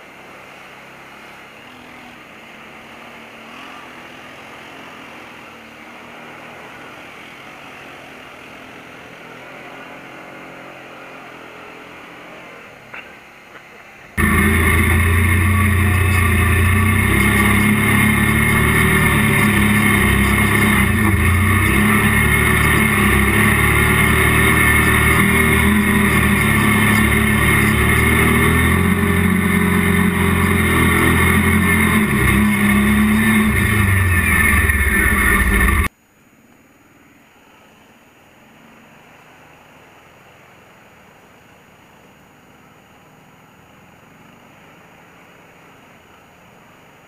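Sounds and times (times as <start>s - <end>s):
quad bike engine running: 14.2s - 35.9s.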